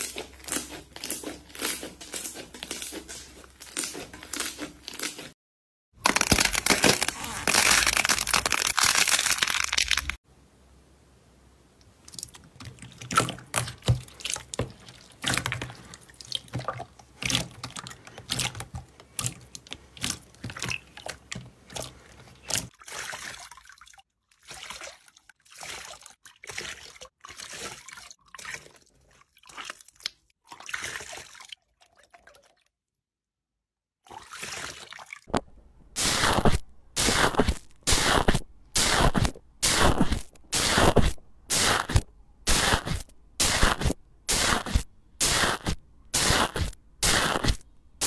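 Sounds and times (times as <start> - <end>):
slime squelching and popping: 6.0 - 10.2.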